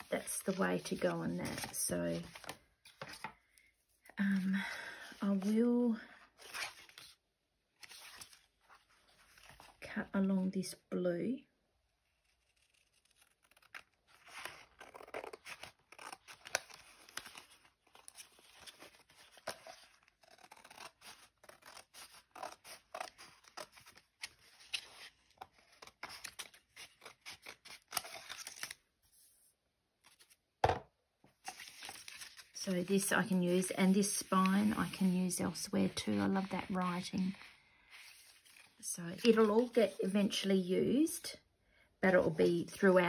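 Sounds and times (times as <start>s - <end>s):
scissors snipping paper: 19.4s - 24.0s.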